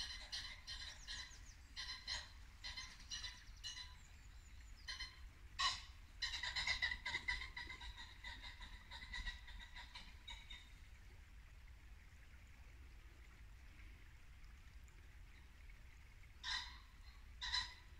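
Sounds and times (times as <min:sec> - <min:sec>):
pheasant calling: 0:00.0 - 0:10.8, 0:16.4 - 0:17.9.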